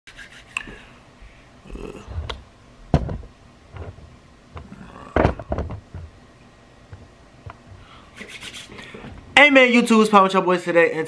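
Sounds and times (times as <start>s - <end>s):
soft rubbing on microphone: 0.1s - 0.6s, 7.6s - 9.1s
microphone handling knocks: 2.1s - 6.2s.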